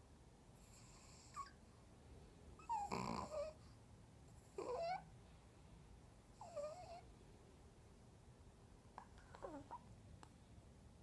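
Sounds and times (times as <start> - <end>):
dog snoring: 0.6 - 1.6, 2.6 - 3.8, 4.4 - 5.0, 6.4 - 7.1.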